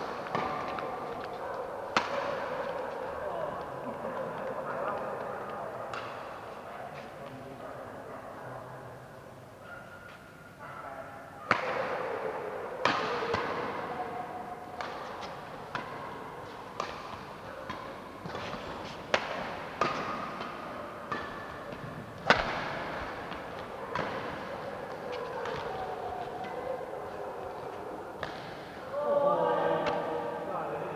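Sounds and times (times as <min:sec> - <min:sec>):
badminton rackets hitting shuttlecock: 0:00.0 - 0:03.2, 0:05.9 - 0:06.4, 0:11.5 - 0:12.2, 0:12.8 - 0:28.9.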